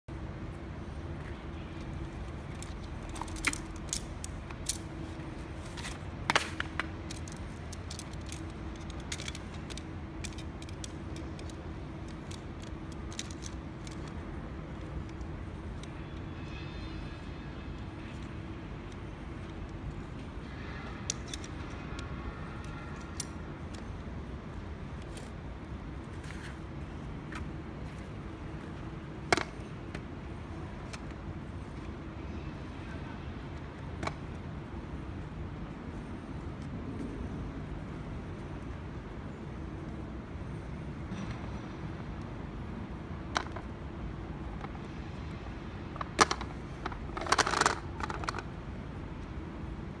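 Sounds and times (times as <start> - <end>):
low background hum: 0.1 - 50.0
camping table parts clicking: 1.8 - 16.0, 21.1 - 23.9, 29.3 - 30.1, 43.3 - 43.7, 45.9 - 48.6.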